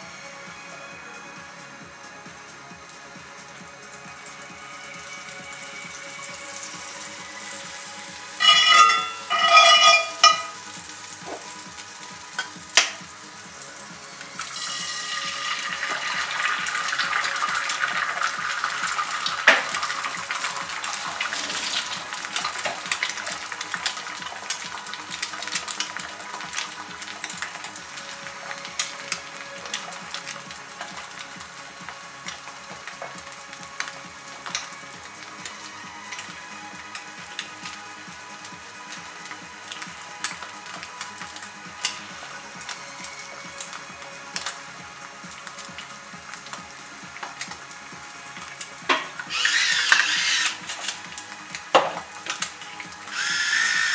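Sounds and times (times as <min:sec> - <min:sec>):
egg sizzling in a skillet: 0:01.7 - 0:53.9
ringing metallic sounds: 0:08.4 - 0:10.5.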